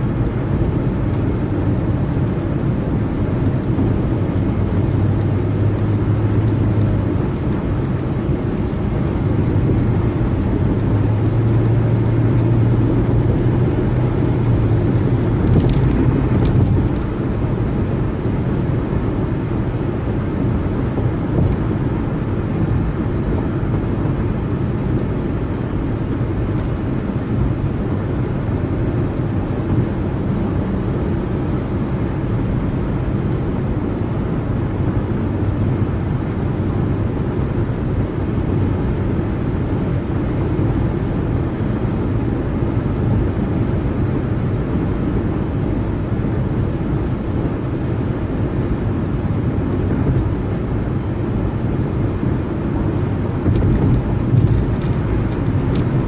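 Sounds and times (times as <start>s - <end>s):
car engine drone: 0.0s - 56.0s
tyre road noise: 0.0s - 56.0s.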